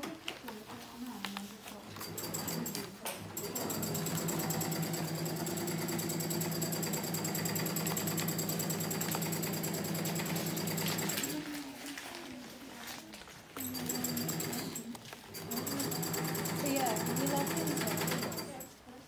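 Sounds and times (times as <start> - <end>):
electric sewing machine stitching: 2.0 - 11.4, 13.6 - 18.7.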